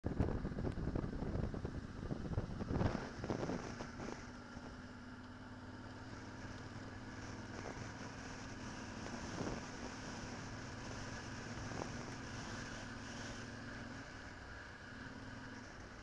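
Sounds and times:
wind noise: 0.0s - 4.3s, 9.0s - 12.8s
motorcycle engine running: 0.0s - 16.0s.

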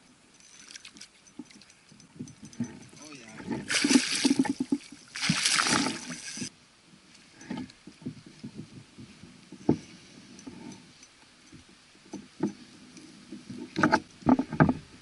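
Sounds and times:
water sloshing: 0.4s - 6.5s
fish splashing at surface: 3.7s - 6.5s.

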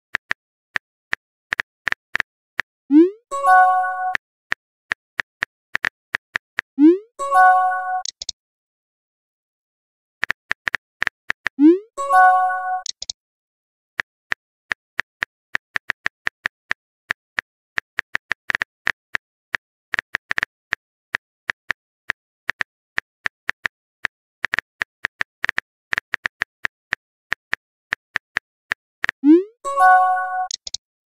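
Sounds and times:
phone keyboard typing clicks: 7.9s - 8.4s, 12.7s - 13.2s, 29.9s - 30.8s.

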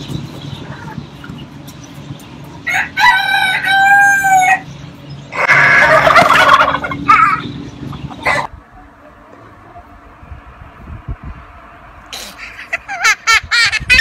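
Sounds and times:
rooster crowing: 2.6s - 4.6s
turkey clucks: 5.4s - 8.5s
turkey gobbling: 5.4s - 8.5s.

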